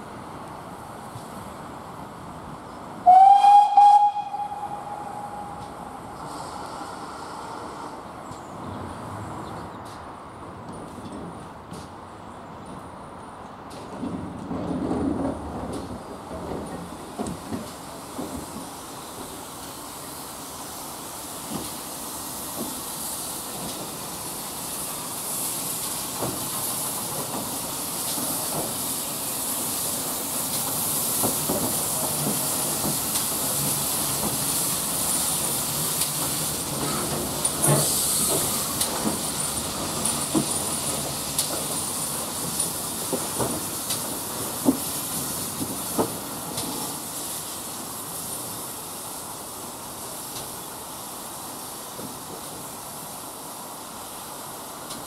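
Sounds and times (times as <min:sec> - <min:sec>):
steam locomotive hissing: 0:00.0 - 0:08.6, 0:15.8 - 0:55.0.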